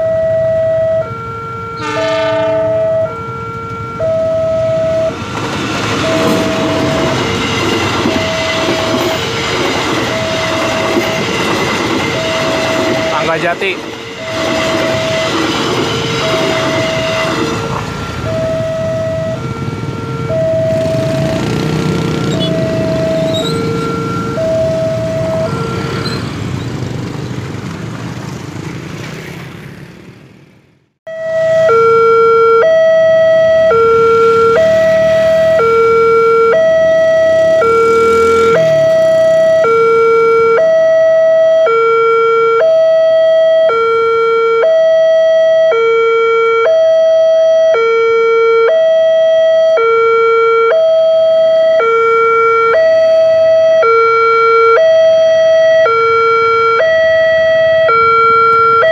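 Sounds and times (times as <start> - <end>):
two-tone crossing warning alarm: 0.0 - 27.4, 31.1 - 58.9
motorcycle engines: 15.8 - 30.9, 32.2 - 41.2.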